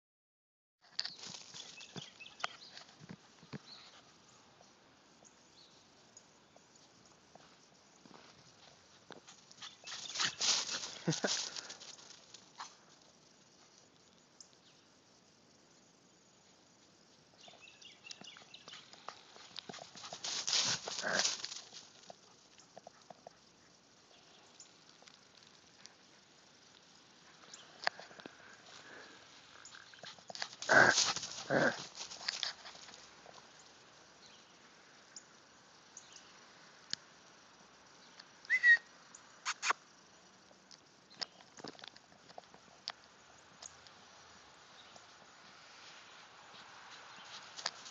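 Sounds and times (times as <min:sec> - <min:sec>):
faint outdoor ambience: 0:00.8 - 0:47.9
footsteps crunching in snow: 0:09.6 - 0:11.8, 0:19.4 - 0:21.9
person whistling: 0:38.5 - 0:38.9.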